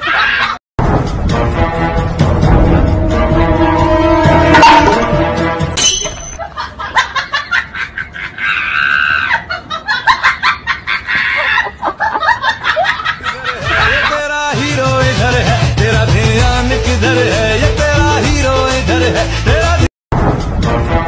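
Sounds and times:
high-pitched shriek of laughter: 0:00.0 - 0:00.6, 0:08.1 - 0:09.8, 0:10.8 - 0:11.9
hearty laughter: 0:06.4 - 0:14.3.

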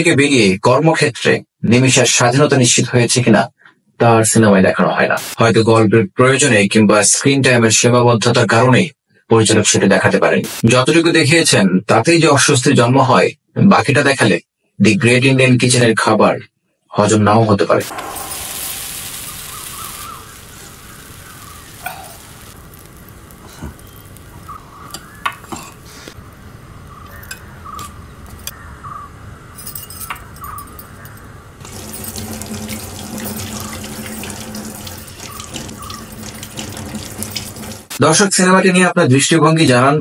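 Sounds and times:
batter hissing on hot griddle: 0:17.8 - 0:26.4, 0:31.6 - 0:38.0
utensils clinking: 0:29.6 - 0:37.9
tap running into sink: 0:31.6 - 0:37.9.

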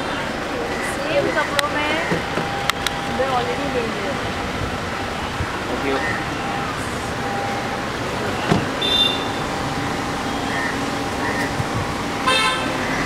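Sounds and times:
street traffic noise: 0:00.0 - 0:13.0
car door shutting: 0:08.3 - 0:09.1.

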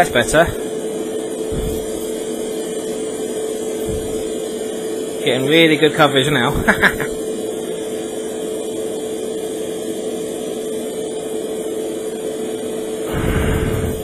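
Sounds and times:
air hissing through airbrush: 0:00.0 - 0:08.5, 0:12.8 - 0:14.0
airbrush compressor humming: 0:00.0 - 0:14.0.

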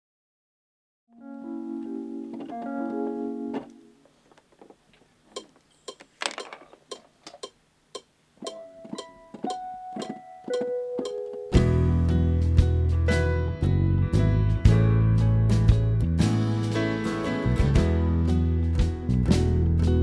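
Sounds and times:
keyboard chords: 0:01.1 - 0:04.1, 0:08.4 - 0:20.0
plucked string notes: 0:01.2 - 0:04.0, 0:08.4 - 0:20.0
sharp clicks and taps: 0:03.6 - 0:11.6.

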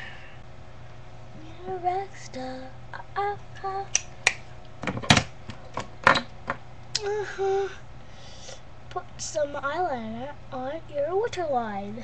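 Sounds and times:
sharp clicks and knocks: 0:03.9 - 0:06.6.

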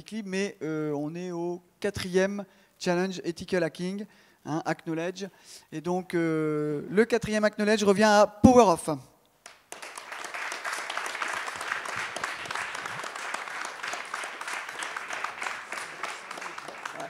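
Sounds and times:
audience applauding: 0:09.4 - 0:17.0.

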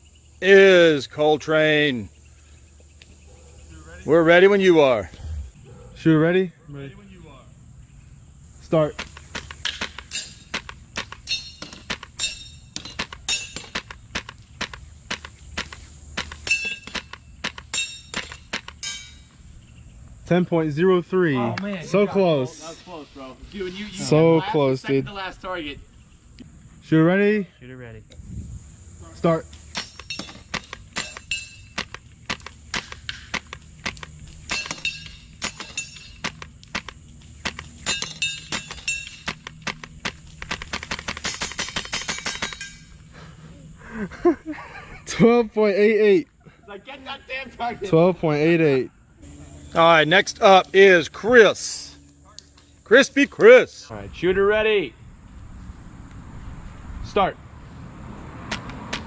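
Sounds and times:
pellets ringing on metal targets: 0:10.0 - 0:14.0, 0:16.2 - 0:19.3, 0:29.7 - 0:31.9, 0:34.4 - 0:36.4, 0:37.8 - 0:39.4, 0:41.1 - 0:43.0
airsoft rifle firing: 0:30.5 - 0:42.6.

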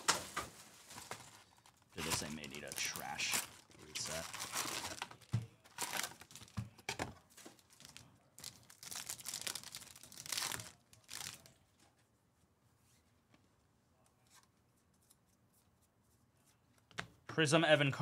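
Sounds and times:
wrapper tearing and crinkling: 0:00.9 - 0:06.6, 0:07.6 - 0:11.6.

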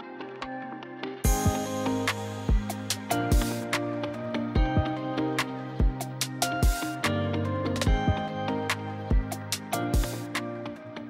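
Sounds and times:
drum beat with cymbals: 0:01.2 - 0:03.9, 0:05.8 - 0:07.2, 0:09.1 - 0:10.4.

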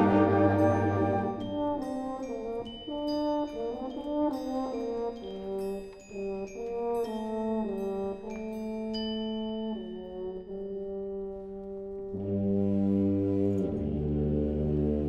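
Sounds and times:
high held note: 0:00.0 - 0:01.8
concert band playing sustained chords: 0:00.0 - 0:02.1.

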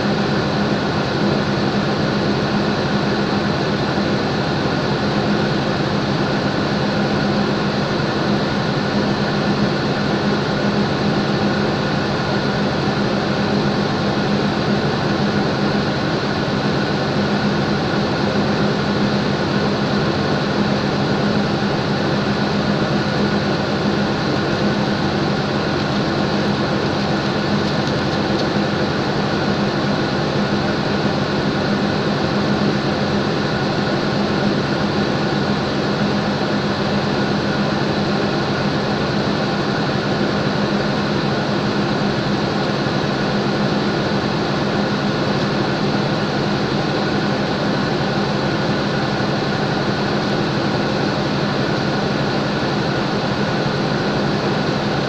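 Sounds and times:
diesel locomotive idling: 0:00.0 - 0:55.0.

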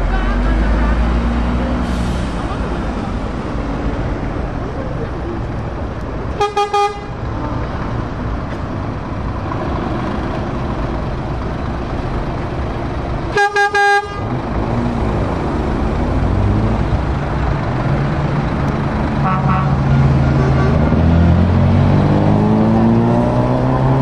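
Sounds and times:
truck diesel engine passing: 0:00.0 - 0:24.0
truck horn blasts: 0:06.4 - 0:07.7, 0:13.3 - 0:14.4, 0:19.2 - 0:21.1.

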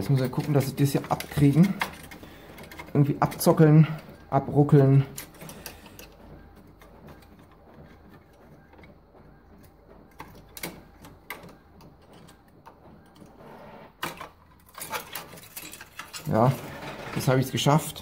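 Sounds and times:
metal plate scraping and clicking: 0:00.0 - 0:08.9, 0:13.1 - 0:18.0.

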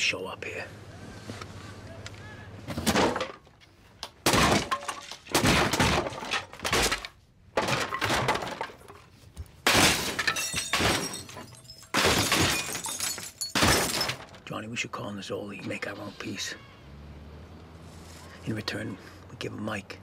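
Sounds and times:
furniture crashing: 0:02.7 - 0:03.4, 0:04.2 - 0:09.0, 0:09.6 - 0:14.4
glass breaking: 0:04.2 - 0:08.9, 0:09.6 - 0:14.4.

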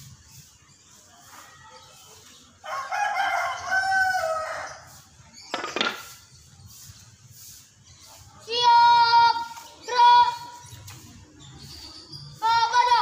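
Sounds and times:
rooster crowing: 0:02.6 - 0:04.9.

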